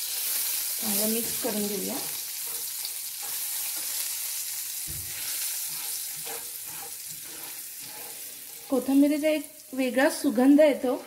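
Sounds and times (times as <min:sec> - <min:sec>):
spatula stirring in pan: 0:00.0 - 0:09.3
oil sizzling in a frying pan: 0:00.0 - 0:11.0.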